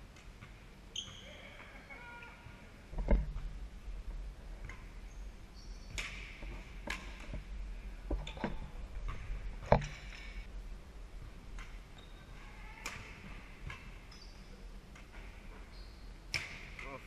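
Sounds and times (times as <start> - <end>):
sneakers squeaking on gym floor: 0.9 - 1.8, 5.1 - 7.2, 11.9 - 13.2, 13.8 - 14.6, 15.2 - 16.6
racket hitting shuttlecock: 5.9 - 7.2, 12.8 - 13.9, 16.3 - 16.9.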